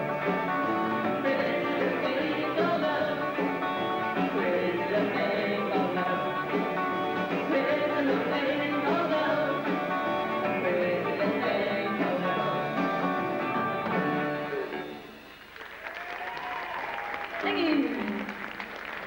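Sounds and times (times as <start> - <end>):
live rock band playing: 0.0 - 15.7
woman singing: 1.2 - 3.4, 4.3 - 6.6, 7.4 - 9.9, 10.6 - 12.6.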